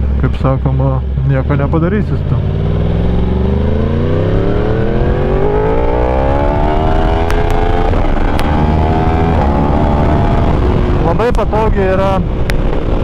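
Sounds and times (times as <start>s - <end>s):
motorcycle engine accelerating: 1.0s - 13.0s.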